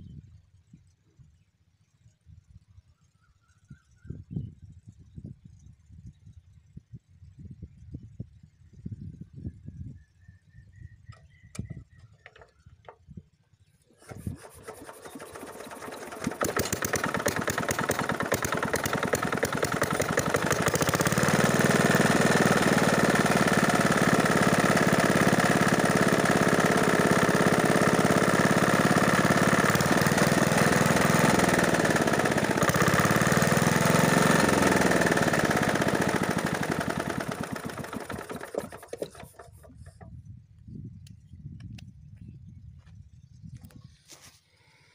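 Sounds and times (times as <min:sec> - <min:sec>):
diesel engine running: 0:14.0 - 0:40.0.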